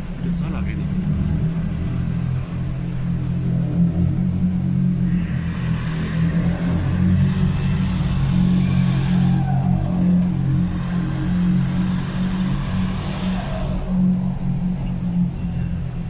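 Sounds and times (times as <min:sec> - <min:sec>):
turbocharged engine running: 0:00.0 - 0:16.0
turbo blow-off whoosh: 0:05.0 - 0:14.7.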